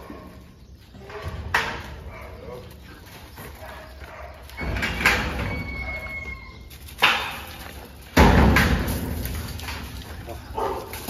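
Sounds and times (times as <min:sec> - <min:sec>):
metal kennel doors banging and rattling: 0:01.0 - 0:02.4, 0:04.3 - 0:11.0
corrugated sheet metal rattling: 0:07.0 - 0:10.1.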